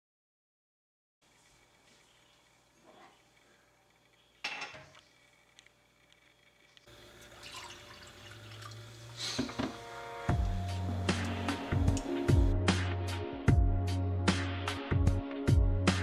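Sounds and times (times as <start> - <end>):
water pouring into glass: 6.9 - 9.2.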